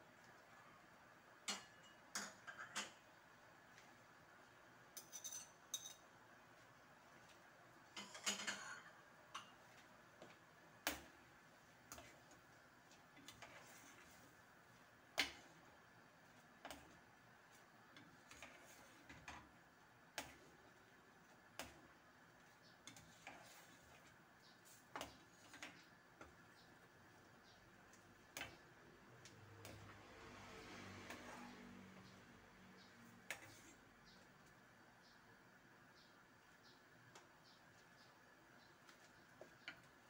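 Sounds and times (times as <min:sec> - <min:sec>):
metal spoon clinking on pan: 0:05.0 - 0:06.1, 0:08.0 - 0:09.6.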